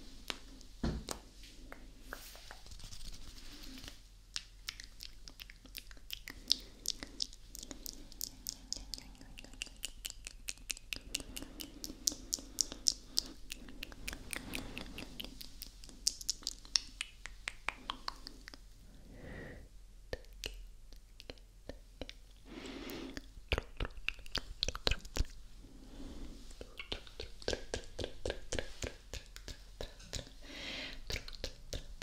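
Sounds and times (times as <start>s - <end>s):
tongue clicks and lip smacks: 3.8s - 18.7s, 20.1s - 25.4s, 26.6s - 30.4s, 31.0s - 32.0s
breathy whispering: 5.9s - 16.8s.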